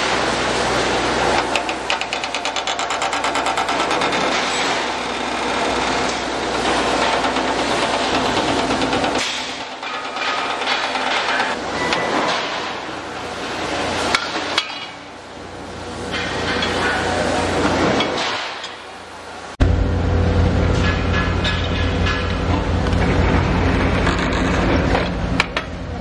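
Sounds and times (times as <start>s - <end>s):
machinery metal clatter: 1.3s - 12.9s, 20.6s - 25.8s.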